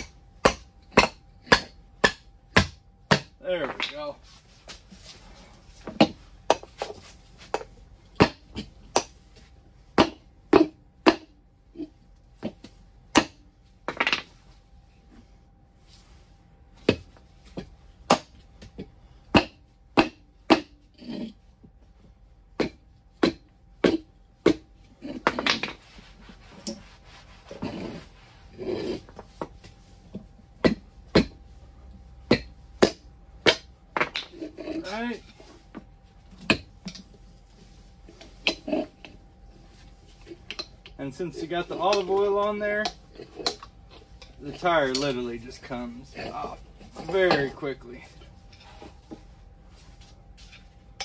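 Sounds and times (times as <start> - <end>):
hammer striking tire spoons: 0.0 - 4.1, 32.2 - 34.4
scraping sounds: 25.0 - 30.1, 37.0 - 51.0.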